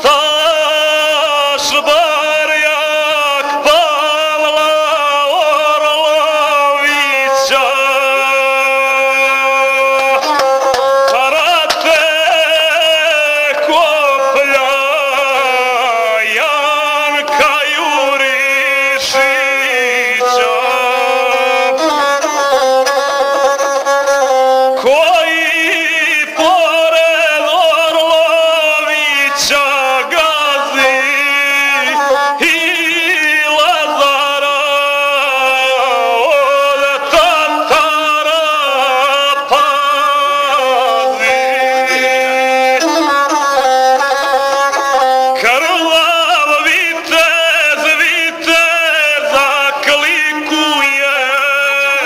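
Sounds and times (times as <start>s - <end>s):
bowed single-string fiddle: 0.0s - 52.0s
man singing: 0.0s - 52.0s.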